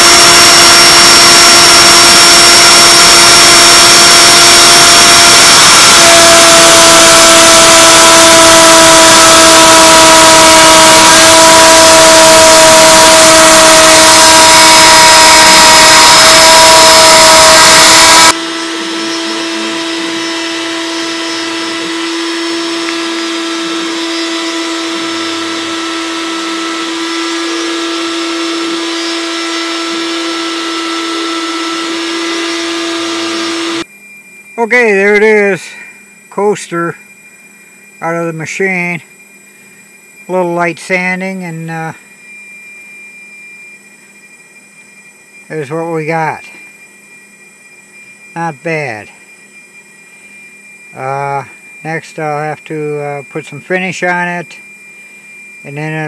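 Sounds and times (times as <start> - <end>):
router bit cutting wood: 0.0 - 33.8
router spindle whine: 0.0 - 56.0.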